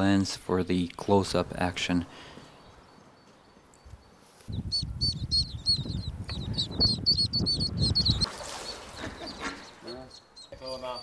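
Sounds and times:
ducklings peeping: 3.2 - 11.0.

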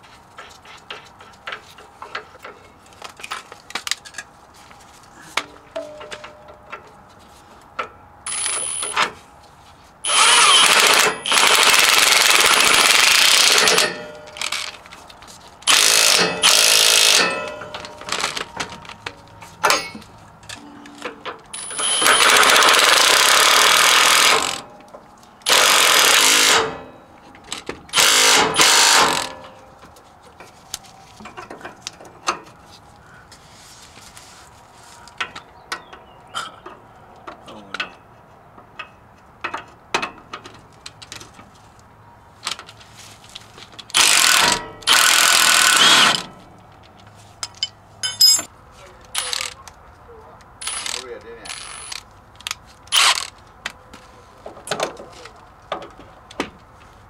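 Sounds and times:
impact wrench hammering: 10.1 - 14.7, 15.7 - 18.4, 19.6 - 20.0, 25.5 - 26.9, 27.9 - 29.5, 44.0 - 46.3.

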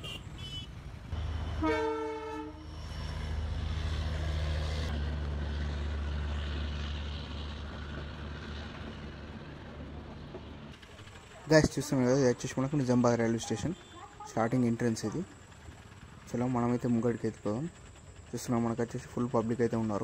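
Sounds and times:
locomotive horn blast: 0.0 - 2.8
locomotive engine rumble: 0.0 - 20.0.

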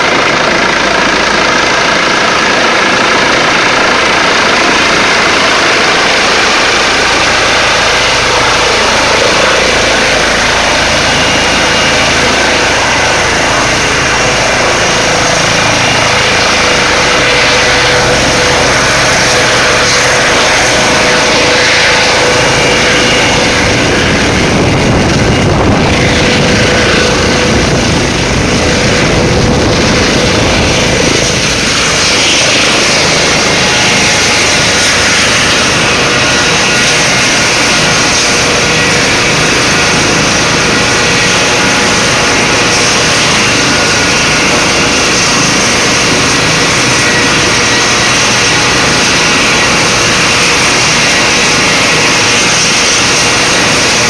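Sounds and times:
helicopter rotor running: 0.0 - 54.0.

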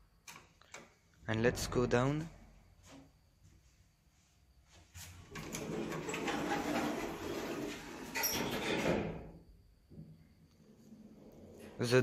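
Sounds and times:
sliding doors closing: 5.2 - 9.3.

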